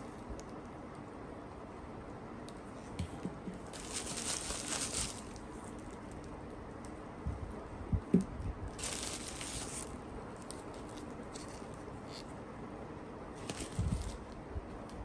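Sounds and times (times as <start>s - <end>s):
bubble wrap crinkling: 3.6s - 6.4s, 8.7s - 12.2s, 13.4s - 14.4s.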